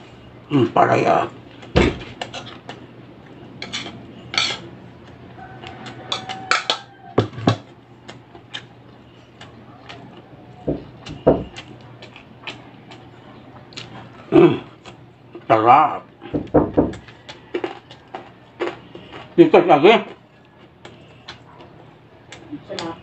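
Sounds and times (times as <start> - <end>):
dishes knocking on table: 1.8 - 2.2, 6.1 - 7.7, 10.7 - 11.6
spoon clinking against plates: 3.6 - 4.7, 5.8 - 6.9.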